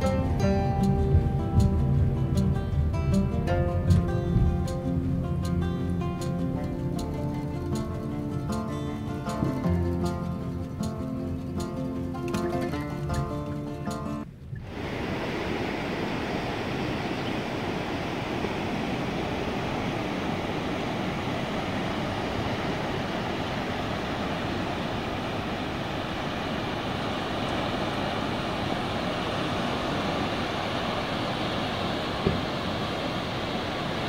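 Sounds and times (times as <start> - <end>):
waves washing onto rocky shore: 14.6 - 34.0.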